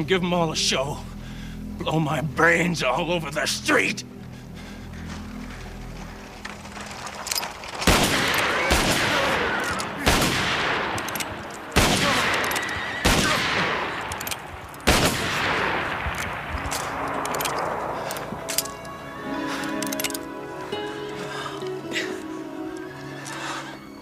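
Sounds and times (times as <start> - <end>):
gunshots with echoing tail: 7.8 - 18.3.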